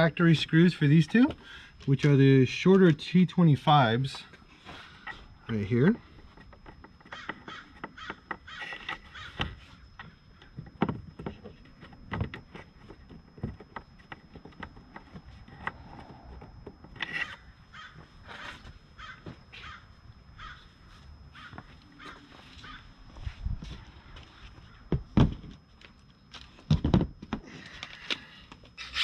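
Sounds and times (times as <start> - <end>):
small screws clicking and tapping: 6.4 - 12.6
bird cawing harshly: 7.1 - 9.4, 17.3 - 19.8, 20.4 - 20.6, 21.4 - 22.8.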